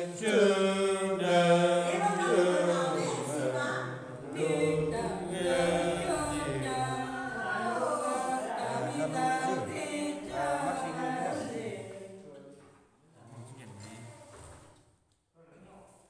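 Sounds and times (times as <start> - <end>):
elderly woman singing: 0.0 - 12.0.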